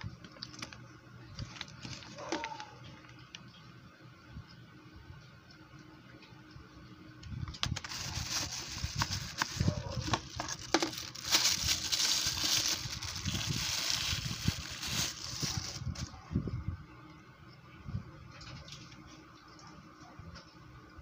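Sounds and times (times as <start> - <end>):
plastic wrapping crinkling: 0.2 - 3.3, 7.5 - 16.1.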